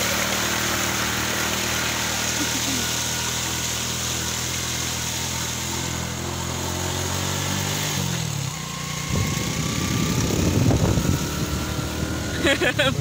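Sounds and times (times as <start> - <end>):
motorbike engine running: 0.0 - 13.0
rough rushing noise: 0.0 - 13.0.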